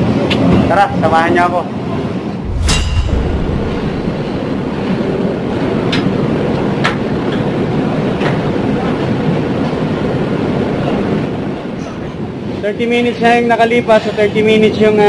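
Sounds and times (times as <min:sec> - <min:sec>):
low background rumble: 0:02.4 - 0:07.8.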